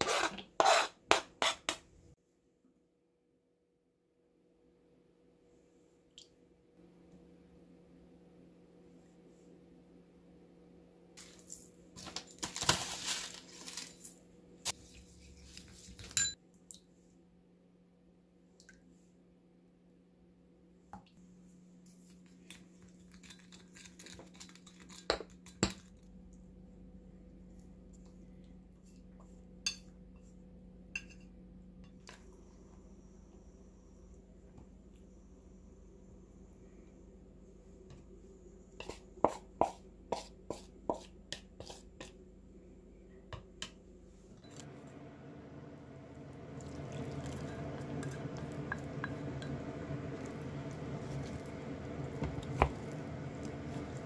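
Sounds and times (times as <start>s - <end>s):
steady low hum: 25.4s - 54.0s
knife chopping on cutting board: 38.8s - 41.8s.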